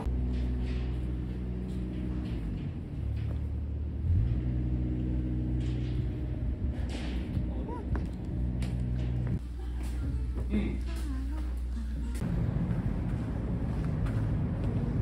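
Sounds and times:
engine idling hum: 0:00.0 - 0:10.4.

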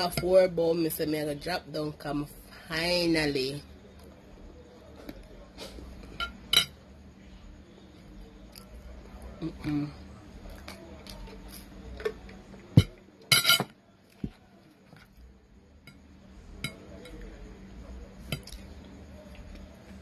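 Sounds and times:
cutlery clinking on plate: 0:06.1 - 0:06.8, 0:12.8 - 0:13.8, 0:16.6 - 0:17.2.

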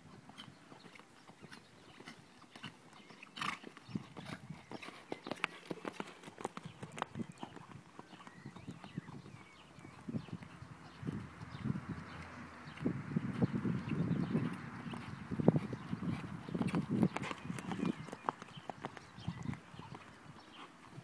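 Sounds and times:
horse hoofbeats on grass: 0:00.0 - 0:21.0.

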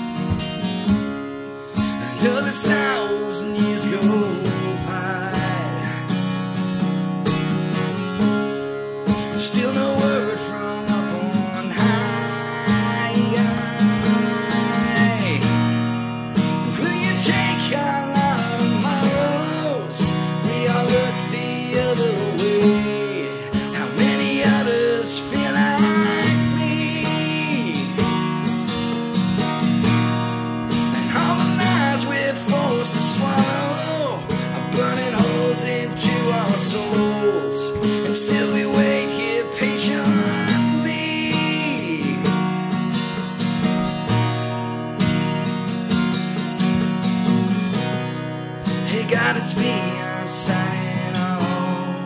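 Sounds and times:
acoustic guitar: 0:00.0 - 0:52.0
man singing: 0:01.8 - 0:06.3, 0:09.1 - 0:30.0, 0:30.6 - 0:42.6, 0:48.7 - 0:52.0.

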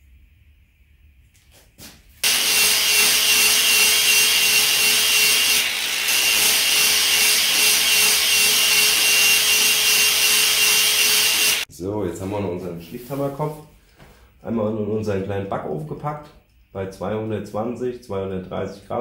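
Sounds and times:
angle grinder grinding steel: 0:02.2 - 0:11.7.

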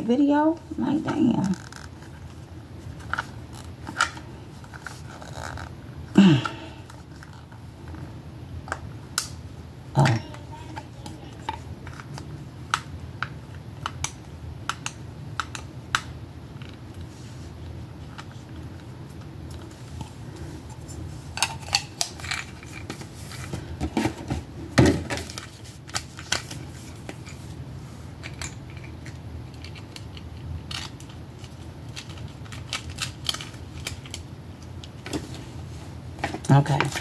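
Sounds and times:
steady low hum: 0:00.0 - 0:37.0
clicks and rattles of small plastic parts: 0:21.4 - 0:24.1, 0:28.2 - 0:34.2.

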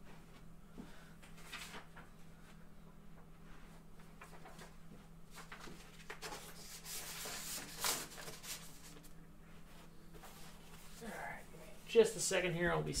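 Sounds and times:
faint steady hum: 0:00.0 - 0:13.0
objects rustling and rubbing: 0:03.6 - 0:11.9.

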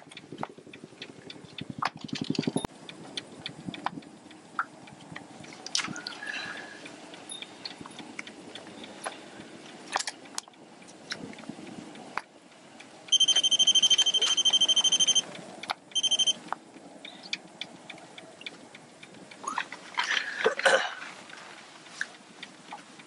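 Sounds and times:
small clicks and knocks: 0:00.0 - 0:06.1
rapid electronic beeping: 0:01.2 - 0:02.7, 0:13.1 - 0:15.3, 0:15.9 - 0:16.4.

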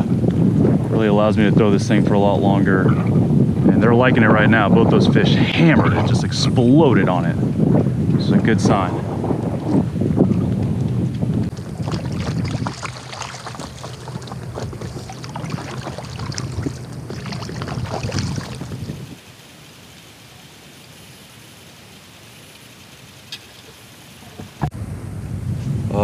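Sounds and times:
low rumble: 0:00.0 - 0:19.2, 0:24.6 - 0:26.0
water splashing and dripping: 0:10.2 - 0:24.7
faint steady hiss: 0:18.4 - 0:26.0.

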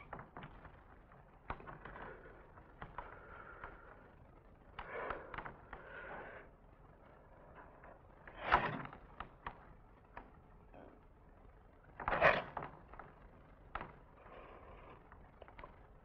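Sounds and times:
light taps and creaks: 0:00.0 - 0:16.0.

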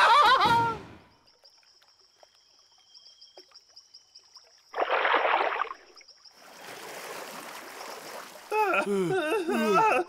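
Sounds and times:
insects trilling: 0:00.0 - 0:10.0
water sloshing: 0:01.3 - 0:08.6
loud water splash: 0:04.8 - 0:05.8.

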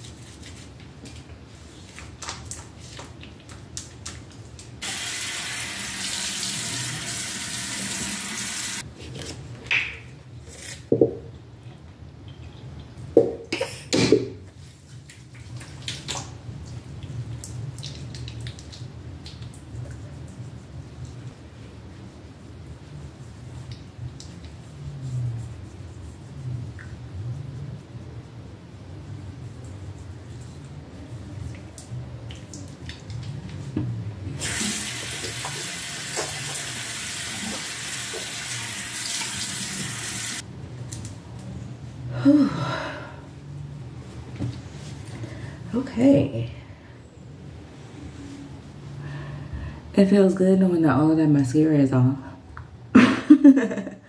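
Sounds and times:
faucet running: 0:04.8 - 0:08.8, 0:34.4 - 0:40.4.

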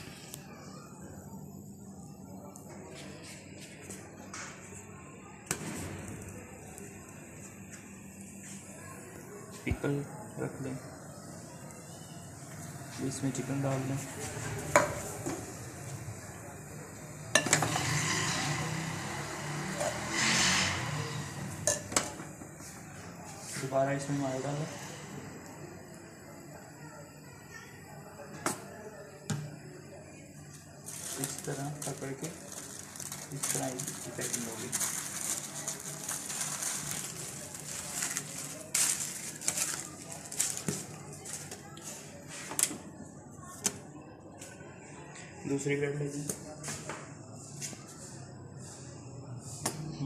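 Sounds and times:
metal spoon scraping a pot: 0:17.3 - 0:22.1
paper rustling and crinkling: 0:30.9 - 0:41.6.

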